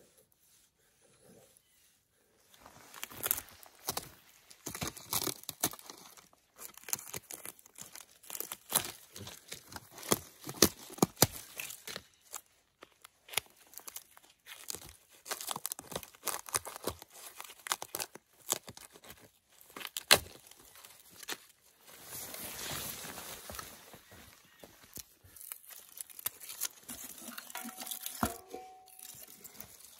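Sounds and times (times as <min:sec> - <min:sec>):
bark tearing and crackling: 0:03.0 - 0:21.5, 0:24.9 - 0:28.0.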